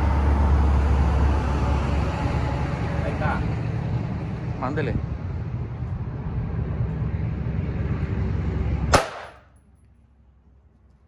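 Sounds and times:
steady low rumble: 0:00.0 - 0:11.0
rifle shot: 0:08.9 - 0:09.5.

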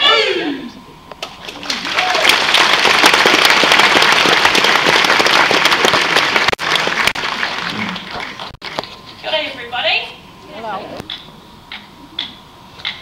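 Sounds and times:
audience applauding: 0:01.4 - 0:08.6.

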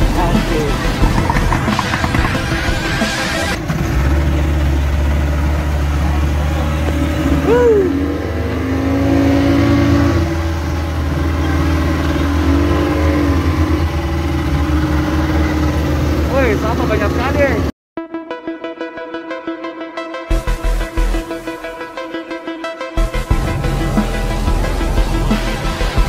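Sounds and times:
outboard motor droning: 0:00.0 - 0:17.7, 0:23.0 - 0:26.0.

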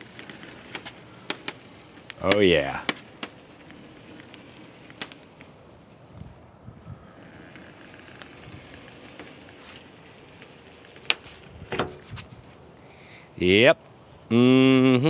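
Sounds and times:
adhesive tape tearing: 0:00.0 - 0:05.6, 0:07.1 - 0:12.2
small clicks: 0:00.0 - 0:05.6.

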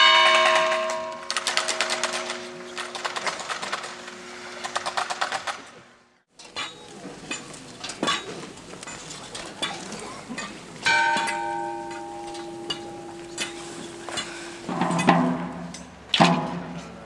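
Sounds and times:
bell ringing: 0:00.0 - 0:04.8, 0:10.8 - 0:14.7.

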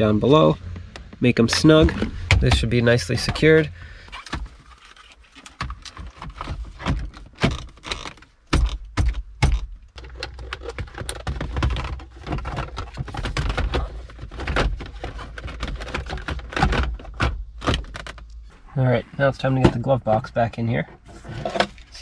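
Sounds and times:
loud thunks: 0:00.8 - 0:03.6.

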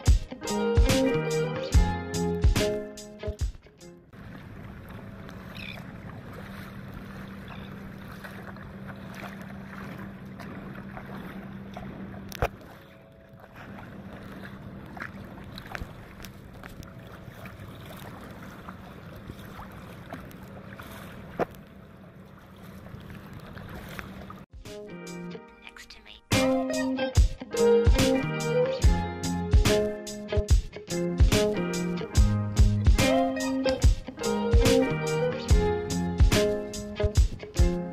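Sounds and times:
wind: 0:03.9 - 0:24.5
lapping water: 0:04.2 - 0:24.5
low steady hum: 0:04.2 - 0:24.5.

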